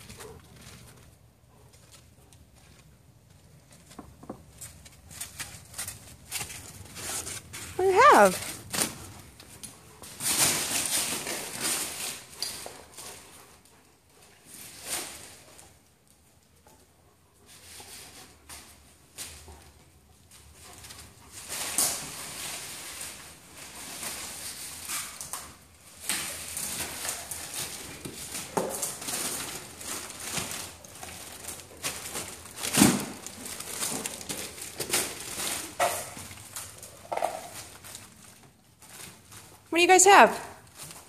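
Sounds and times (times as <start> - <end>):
bubble wrap crinkling: 20.3 - 41.0.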